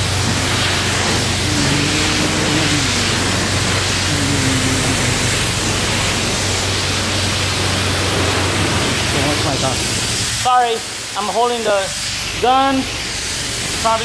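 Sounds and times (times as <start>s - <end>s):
pressure washer spraying water: 0.0s - 14.0s
low hum: 0.3s - 9.0s.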